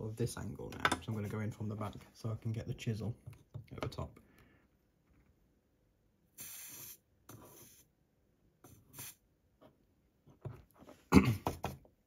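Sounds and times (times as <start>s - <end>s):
soldering iron scratchy hisses: 6.4s - 7.9s, 8.7s - 9.3s.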